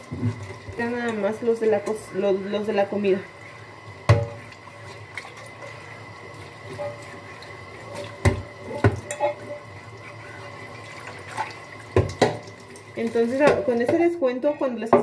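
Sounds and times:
dishes knocking against sink: 0:04.1 - 0:04.4
tap running into sink: 0:04.1 - 0:04.4, 0:08.0 - 0:09.2, 0:11.9 - 0:14.0.

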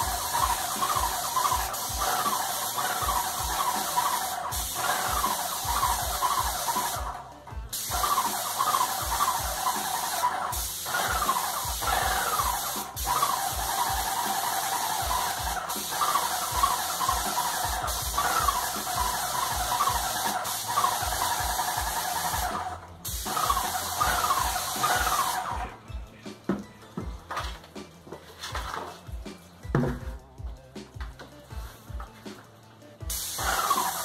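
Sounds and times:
paint sprayer pump squealing and knocking: 0:00.0 - 0:07.2, 0:07.8 - 0:25.8, 0:33.2 - 0:34.0
paint spray hissing: 0:00.0 - 0:25.7, 0:33.0 - 0:34.0.

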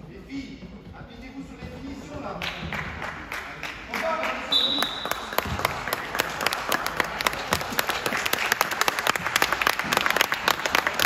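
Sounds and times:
crowd applauding: 0:02.4 - 0:11.0.

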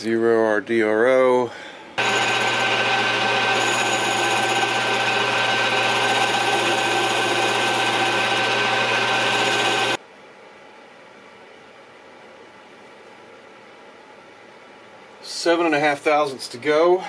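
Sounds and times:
lathe humming with whine: 0:02.0 - 0:10.0.

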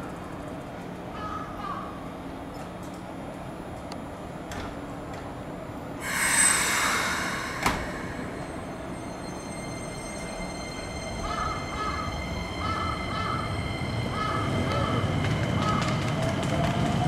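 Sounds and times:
electric train humming: 0:02.0 - 0:17.0
loud air hiss: 0:06.0 - 0:09.4.

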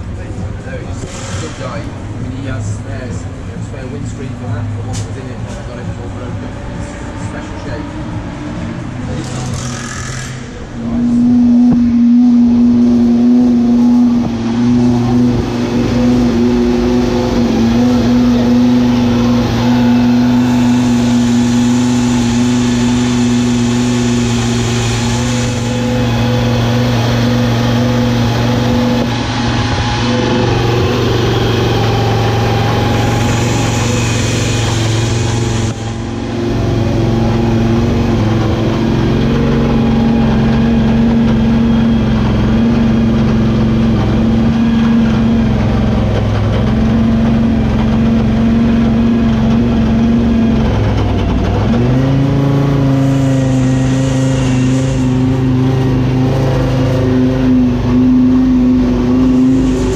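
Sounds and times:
race car engine running: 0:00.0 - 0:59.9.

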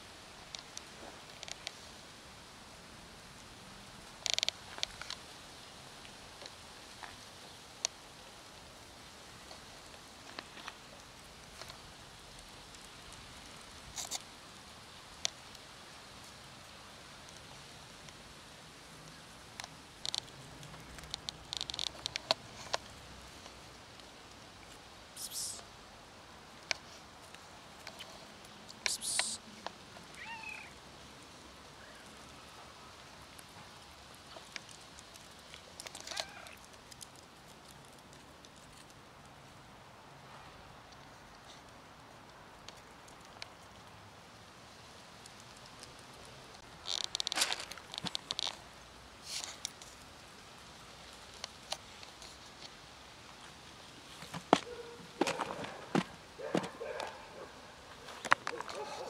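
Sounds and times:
high-pitched rustle: 0:27.8 - 0:29.6
cat meowing: 0:30.2 - 0:30.8, 0:36.1 - 0:36.6.

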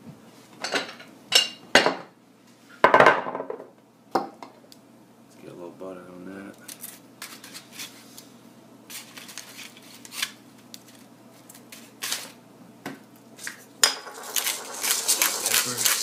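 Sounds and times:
fork scraping on potato and foil: 0:14.2 - 0:16.0.

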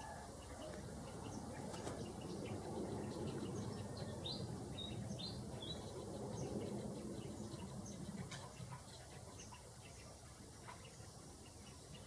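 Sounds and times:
low background noise: 0:00.0 - 0:12.0
small birds chirping: 0:00.0 - 0:12.0.

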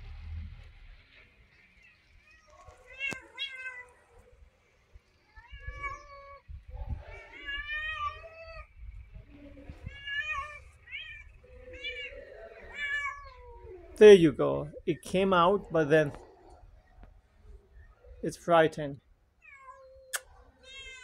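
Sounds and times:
cat meowing: 0:02.2 - 0:04.0, 0:05.3 - 0:08.7, 0:09.7 - 0:14.0, 0:19.4 - 0:21.0.

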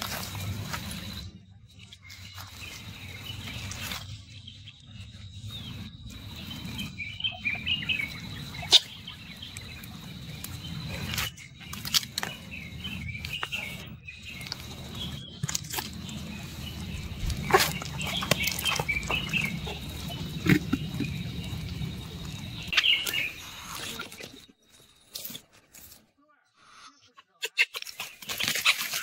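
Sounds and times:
low rumble: 0:05.3 - 0:22.8
chirping calls: 0:05.4 - 0:24.4.

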